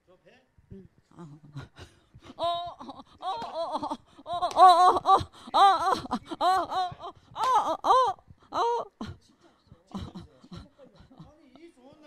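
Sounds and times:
woman wailing cries: 1.2s - 9.2s.

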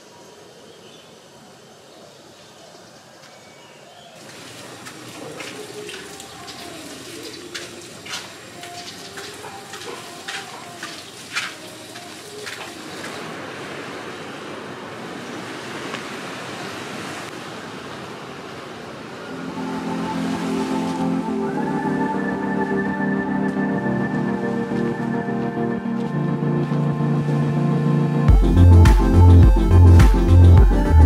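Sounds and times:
water from hose splashing: 4.2s - 21.4s
sea surf rushing: 10.3s - 29.0s.

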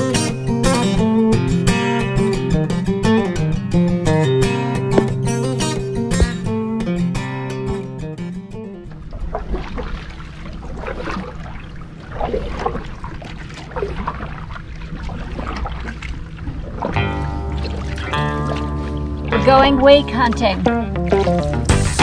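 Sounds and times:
guitar music: 0.0s - 9.0s, 17.0s - 22.0s
low steady rumble: 7.7s - 21.1s
paddle splashes in water: 8.8s - 22.0s.

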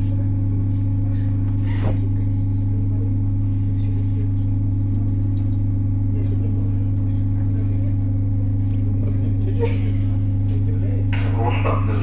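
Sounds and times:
electric train humming: 0.0s - 12.0s.

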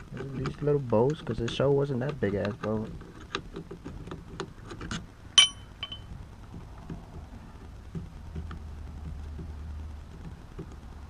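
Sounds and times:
metallic clink: 5.4s - 6.1s.

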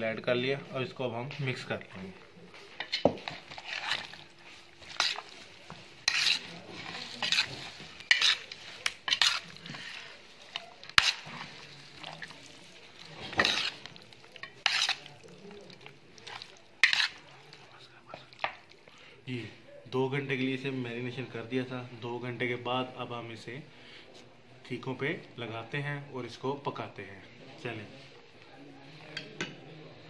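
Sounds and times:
wet squelching of mixing chicken: 3.2s - 18.9s.

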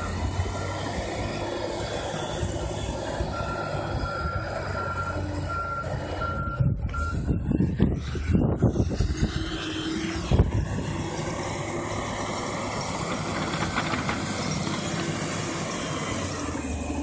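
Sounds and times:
reversing alarm beeping: 0.0s - 8.6s
diesel engine running: 0.0s - 17.0s.

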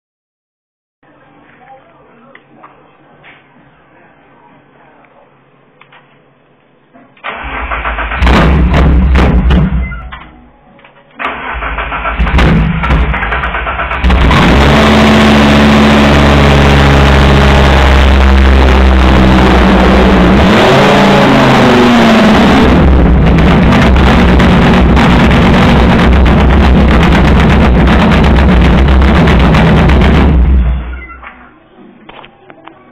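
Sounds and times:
engine starting and running: 7.2s - 10.0s, 11.2s - 31.2s
engine revving: 7.3s - 9.6s, 11.3s - 30.9s.

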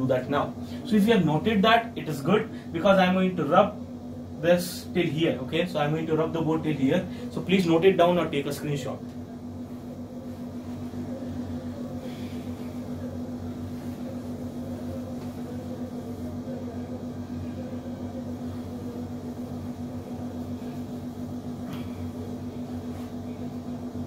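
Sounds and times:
steady low hum: 0.0s - 24.0s
cloth rubbing on whiteboard: 9.6s - 11.1s.

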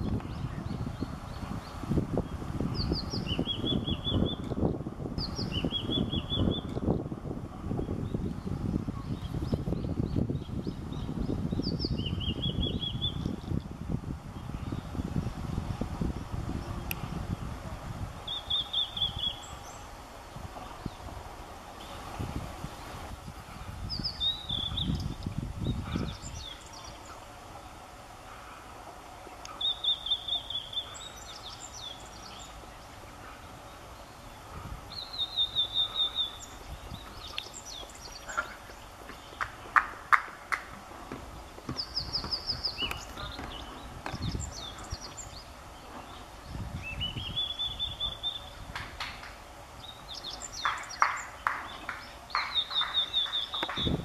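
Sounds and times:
bird whistling song: 2.8s - 4.5s, 5.2s - 6.9s, 9.0s - 13.5s, 18.3s - 19.8s, 23.9s - 27.1s, 29.5s - 32.6s, 34.9s - 39.6s, 41.7s - 48.6s, 49.8s - 54.0s
quick ticking bird notes: 34.9s - 45.5s, 47.3s - 54.0s.

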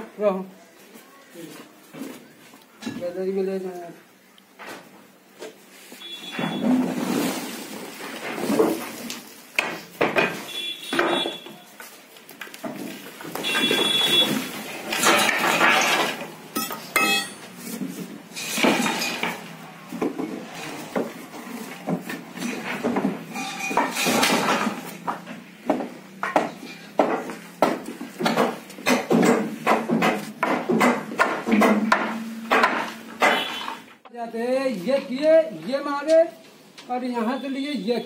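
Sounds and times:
wooden planks knocking and clattering: 8.1s - 33.9s
metallic clinks: 16.6s - 17.4s.

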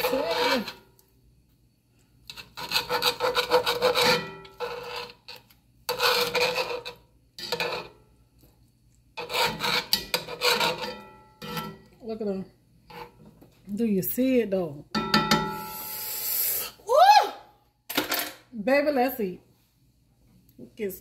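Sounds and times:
blade rasping against pan: 0.0s - 0.8s, 2.3s - 8.0s, 9.2s - 11.8s
knife sawing through steak: 2.4s - 5.2s, 9.2s - 10.9s.

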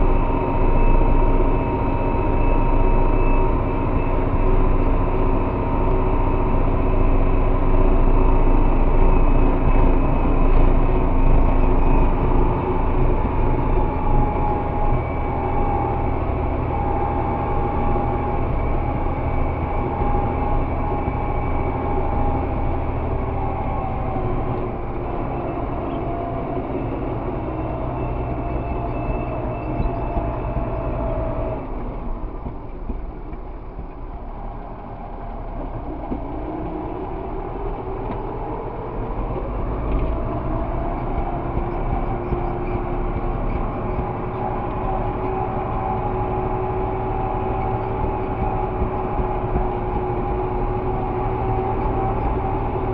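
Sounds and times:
tractor engine running: 0.0s - 52.9s.

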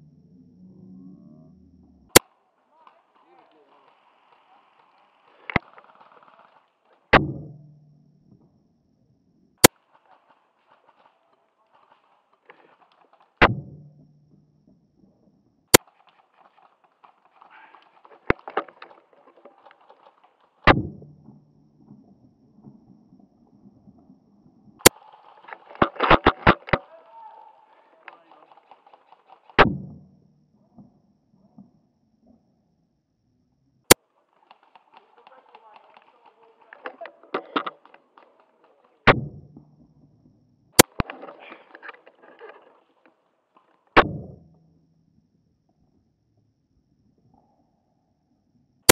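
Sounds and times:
faint rustling: 2.6s - 7.1s, 9.6s - 13.4s, 14.3s - 22.8s, 40.0s - 44.0s
airsoft rifle shots: 7.1s - 7.9s, 13.0s - 14.0s, 20.6s - 21.3s, 28.0s - 30.1s, 34.4s - 39.6s
sharp clicks: 15.7s - 21.1s, 24.8s - 29.8s, 33.9s - 39.2s, 40.8s - 42.8s.

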